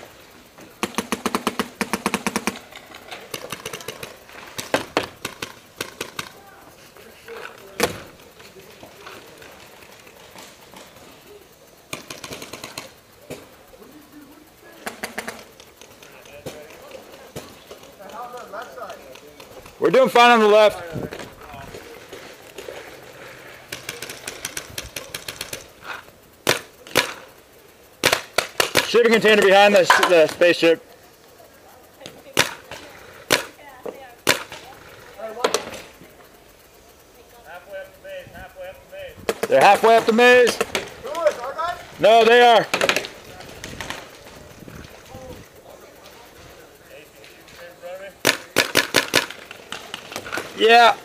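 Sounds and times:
hopper motor whirring: 0:00.0 - 0:51.0
paintball marker firing: 0:00.8 - 0:02.7, 0:03.3 - 0:06.4, 0:11.9 - 0:13.4, 0:14.8 - 0:19.7, 0:23.7 - 0:27.3, 0:28.0 - 0:30.4, 0:32.4 - 0:34.7, 0:39.2 - 0:41.4, 0:42.6 - 0:44.3, 0:48.2 - 0:50.6.

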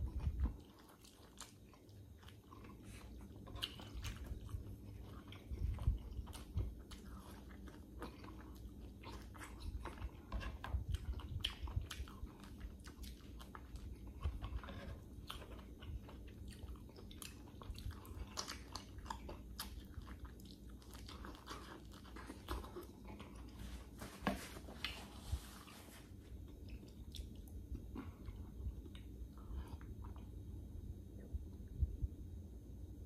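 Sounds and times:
person chewing wetly: 0:00.0 - 0:31.7.

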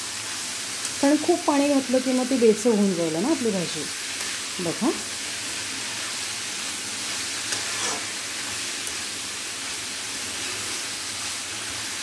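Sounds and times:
vegetables sizzling in oil: 0:00.0 - 0:12.0
ladle scraping pan: 0:07.5 - 0:08.2.

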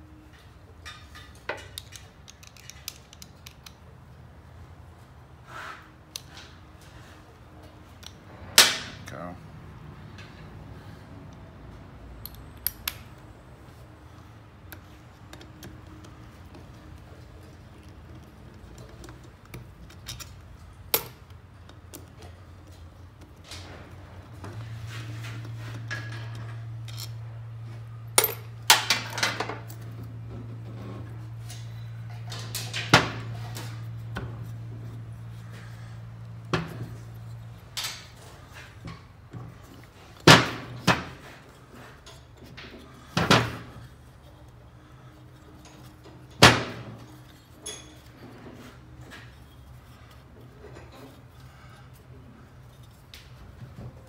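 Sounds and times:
steady low hum: 0:00.0 - 0:54.0
metal tools clinking on metal: 0:28.1 - 0:29.8, 0:47.0 - 0:51.8.

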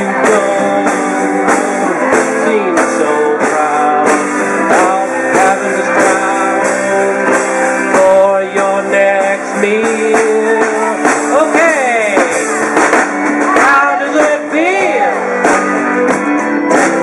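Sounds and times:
acoustic guitar: 0:00.0 - 0:17.0
keyboard: 0:00.0 - 0:17.0
steady drum beat: 0:00.0 - 0:17.0.

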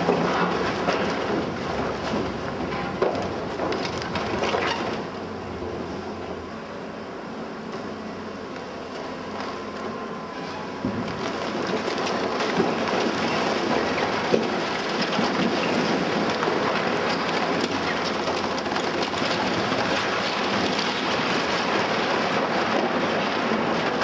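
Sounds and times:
sharp wood cracks: 0:00.0 - 0:05.0, 0:10.9 - 0:24.0
splintering wooden beams: 0:00.0 - 0:05.0, 0:10.8 - 0:24.0
falling wood debris: 0:00.0 - 0:05.1, 0:10.8 - 0:24.0.

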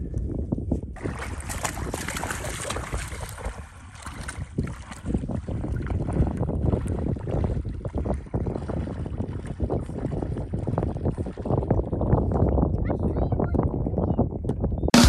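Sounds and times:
wind buffeting microphone: 0:00.0 - 0:15.0
legs sloshing through water: 0:01.0 - 0:11.9.

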